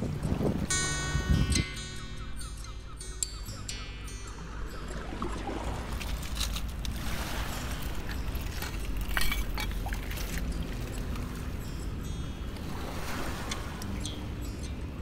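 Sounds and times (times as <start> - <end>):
wind rumble on microphone: 0.0 - 1.8
water lapping among stones: 4.8 - 14.3.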